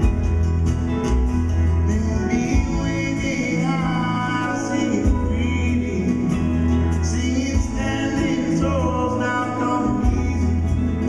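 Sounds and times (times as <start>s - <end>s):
live band playing slow song: 0.0s - 11.0s
man singing: 1.7s - 11.0s.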